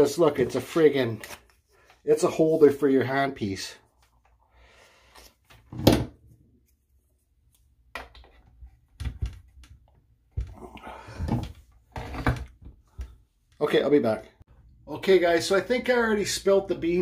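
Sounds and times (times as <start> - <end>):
objects handled and set down: 7.9 - 10.6.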